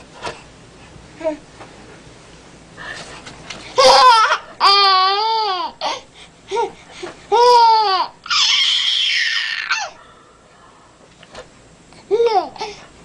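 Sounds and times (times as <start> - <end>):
baby squealing with laughter: 3.8 - 5.4, 7.4 - 10.0.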